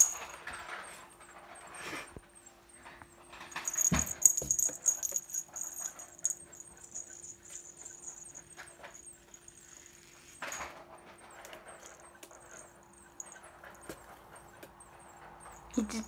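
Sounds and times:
small bell jingling: 0.0 - 0.6, 3.3 - 10.7, 11.6 - 16.0.

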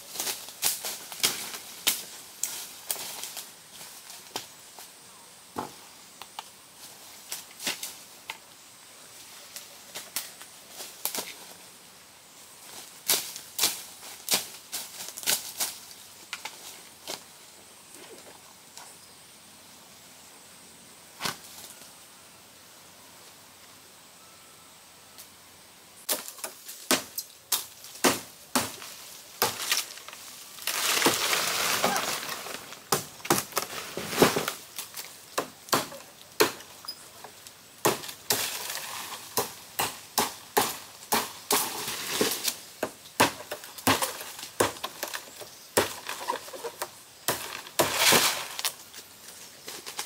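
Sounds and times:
leaves rustling: 0.0 - 23.9, 25.2 - 50.0
blade chopping vegetation: 26.1 - 29.9, 35.4 - 36.6, 37.8 - 42.6, 43.2 - 45.2, 47.3 - 48.6.

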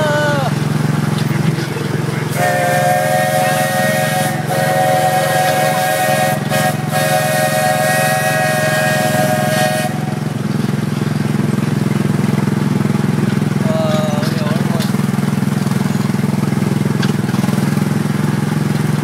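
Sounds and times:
small engine humming: 0.0 - 19.0
steam locomotive chime whistle: 2.3 - 10.5.

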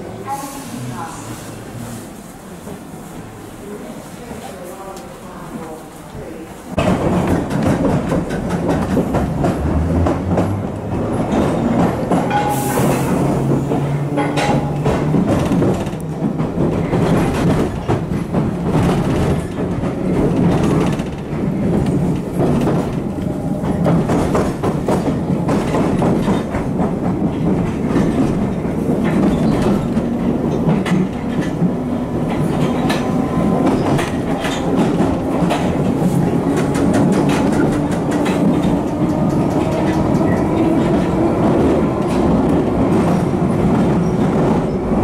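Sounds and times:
train wheels rumbling on rails: 0.0 - 45.0
clacks over rail joints: 6.8 - 44.8.

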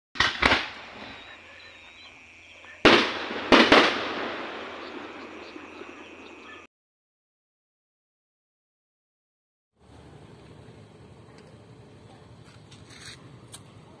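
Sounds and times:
fireworks crackle: 0.2 - 6.0
fireworks bursting with bangs: 0.2 - 6.4.

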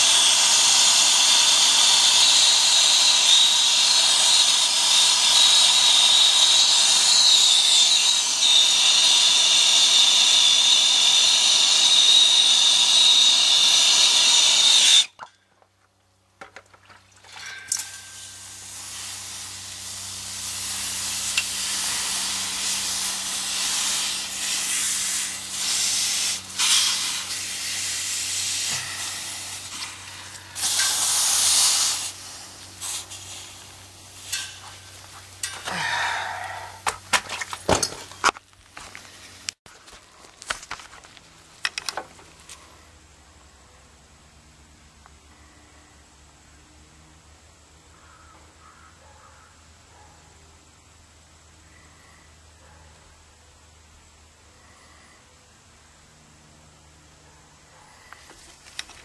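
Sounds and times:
torch flame hissing: 18.1 - 36.9.

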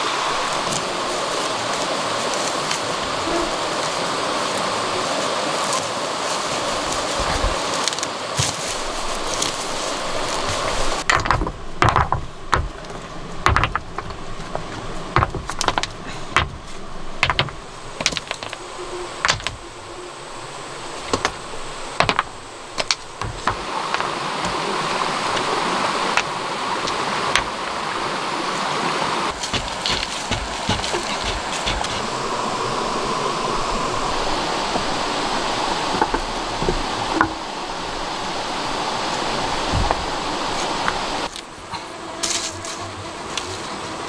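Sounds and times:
forest background hiss: 0.0 - 44.0
stones and plants knocking: 6.6 - 19.8, 21.0 - 27.8, 29.3 - 32.1, 35.8 - 37.5, 39.6 - 41.4.

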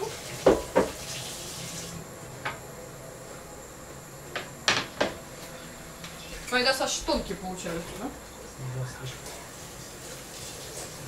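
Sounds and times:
kitchen clatters and knocks: 0.0 - 1.0, 4.6 - 5.2
water running: 0.0 - 2.1, 6.2 - 11.0.

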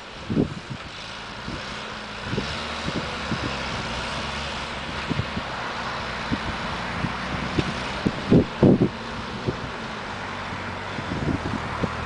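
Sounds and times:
tractor engine running: 0.0 - 12.0
wind thumping on microphone: 4.9 - 5.6, 6.2 - 9.7, 10.9 - 12.0.

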